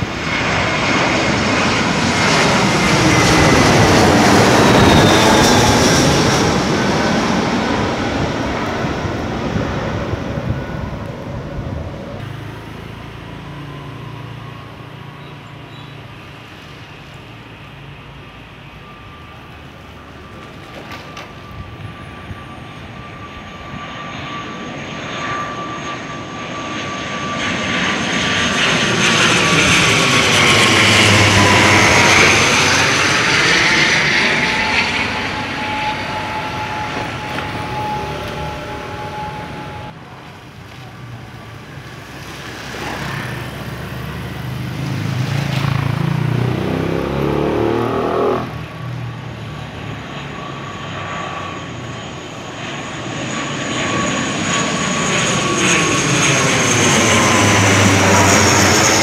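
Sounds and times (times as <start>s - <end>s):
turboprop airliner passing overhead: 0.0s - 59.0s.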